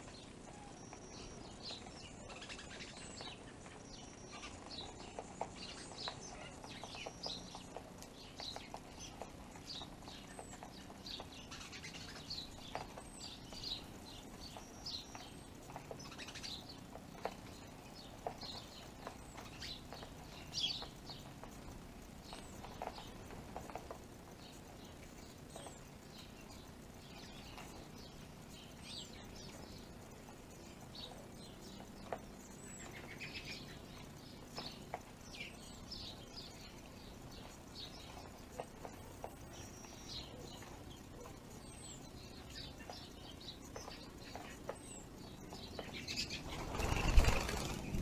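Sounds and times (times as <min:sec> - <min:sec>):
small birds chirping: 0:00.0 - 0:48.0
wings fluttering: 0:42.5 - 0:48.0.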